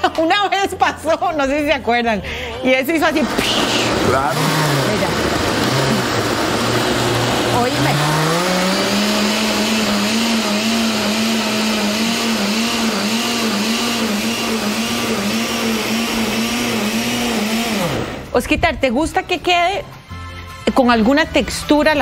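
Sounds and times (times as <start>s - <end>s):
blender running: 3.0s - 18.3s.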